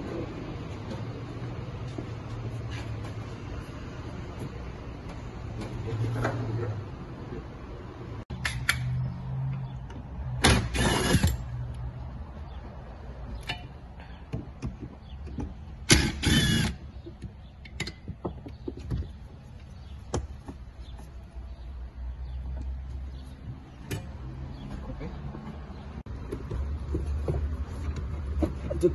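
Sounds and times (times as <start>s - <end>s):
knocks and clicks of parts: 13.3s - 19.2s
cordless drill whirring: 16.0s - 16.8s.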